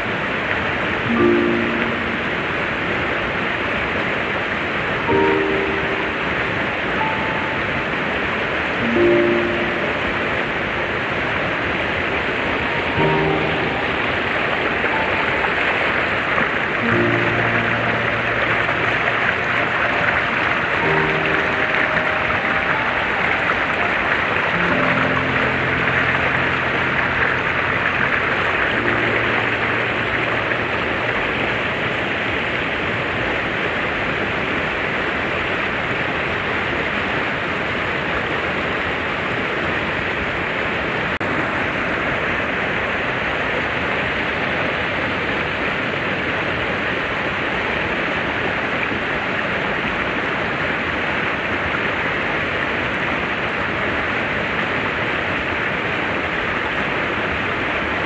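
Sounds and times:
river water rushing: 0.0 - 58.0
background music: 1.0 - 3.0, 5.0 - 10.7, 12.3 - 31.7.

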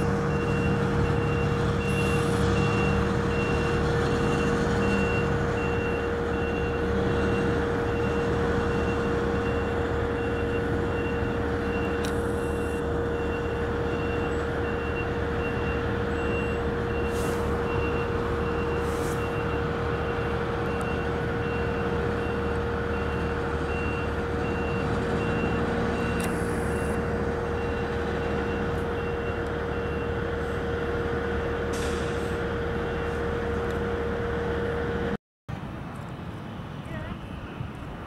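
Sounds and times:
reversing alarm beeping: 0.0 - 30.6
diesel engine running: 0.0 - 35.2
air brake hisses: 17.1 - 17.5, 18.8 - 19.2, 31.7 - 32.4.

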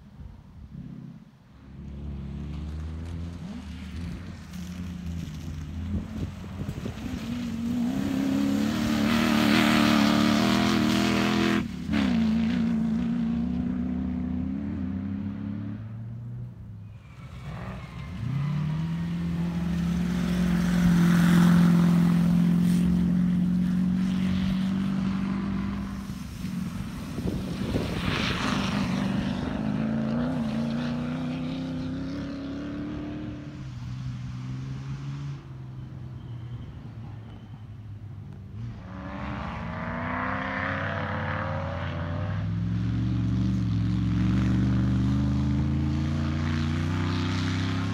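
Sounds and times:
off-road car engines revving: 0.7 - 47.9.

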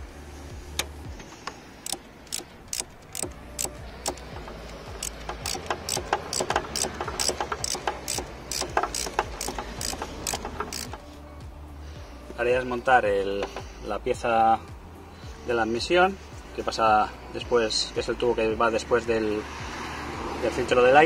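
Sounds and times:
ratchet wrench clicking: 0.8 - 11.0.

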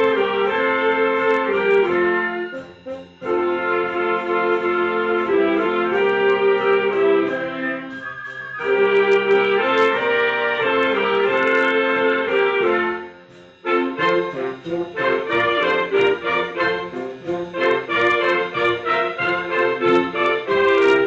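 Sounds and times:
wind band playing: 0.0 - 21.0.

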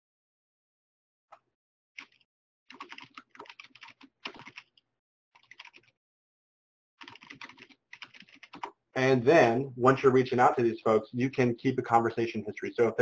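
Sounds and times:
computer keyboard typing: 2.0 - 4.8, 5.4 - 6.0, 7.0 - 8.8.

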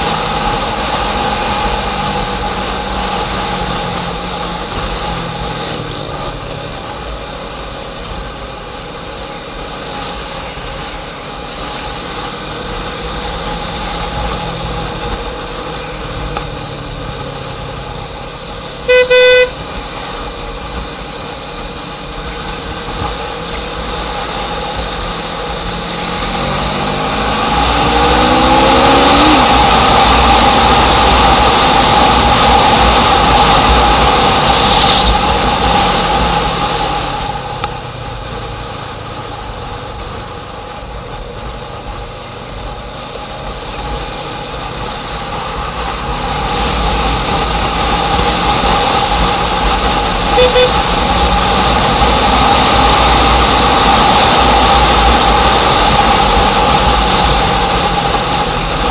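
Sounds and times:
road noise: 0.0 - 58.9
vehicle engine running: 0.0 - 58.9
car horn honk: 18.8 - 19.6, 50.3 - 51.0.

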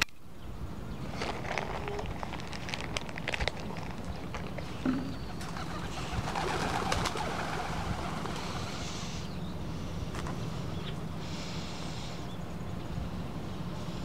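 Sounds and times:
pigeons cooing and scuffling: 1.2 - 8.8
wing flaps: 5.3 - 8.8.

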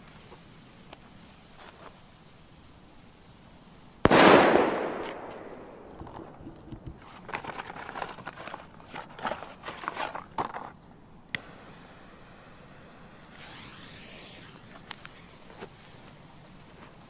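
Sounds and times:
soft hiss: 0.0 - 17.0
rustling and scraping handling noises: 6.0 - 10.9, 13.4 - 17.0.

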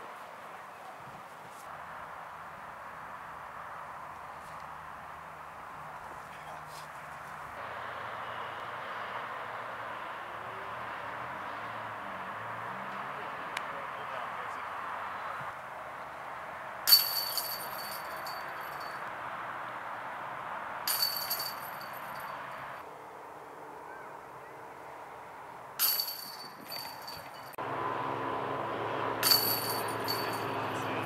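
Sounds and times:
disc hitting metal basket chains: 16.9 - 19.0, 20.9 - 22.5, 25.8 - 27.6, 29.2 - 31.0.

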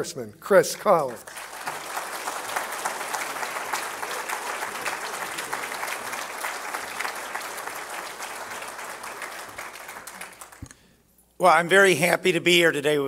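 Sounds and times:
audience applauding: 1.1 - 10.8.

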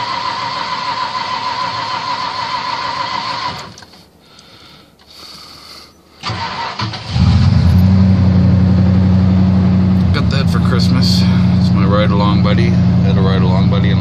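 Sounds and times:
engine cranking and firing: 0.0 - 4.0, 6.2 - 8.5
loud engine idle: 9.1 - 14.0.

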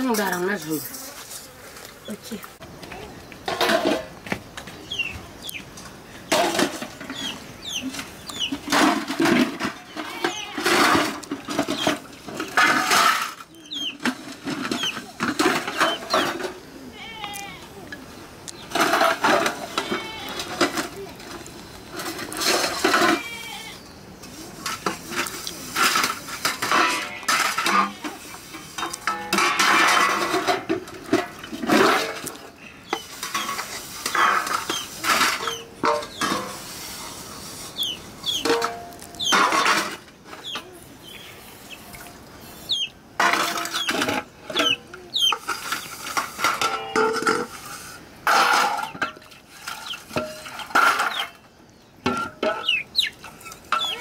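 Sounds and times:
metal plates clattering: 3.5 - 4.2, 6.3 - 16.7, 18.6 - 23.3, 24.6 - 37.2, 37.8 - 40.7, 43.2 - 51.4, 52.0 - 54.0
scrubbing steel dishes: 6.3 - 16.7, 24.6 - 40.6, 42.7 - 51.4, 52.0 - 54.0
plate ringing: 46.6 - 47.4.

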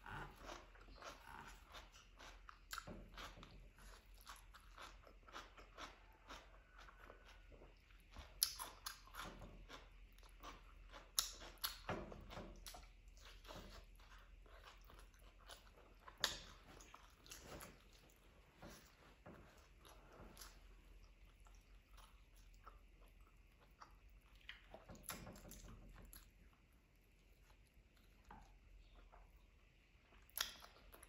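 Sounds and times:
person chewing food: 0.0 - 31.0.

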